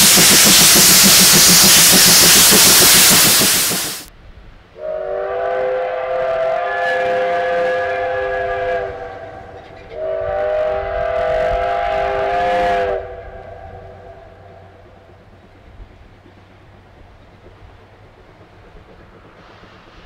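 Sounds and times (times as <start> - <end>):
locomotive exhaust steam rushing: 0.0 - 4.1, 4.8 - 20.0
steam whistle chord: 4.8 - 14.0.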